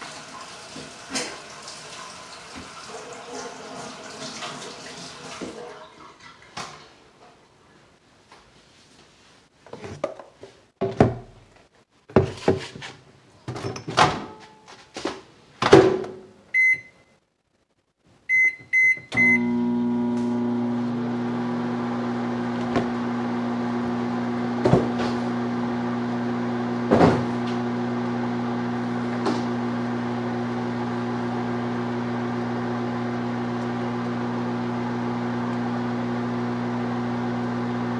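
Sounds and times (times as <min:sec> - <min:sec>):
microwave keypad beeps: 0:16.6 - 0:17.1, 0:18.3 - 0:19.6
microwave humming: 0:18.3 - 0:37.9.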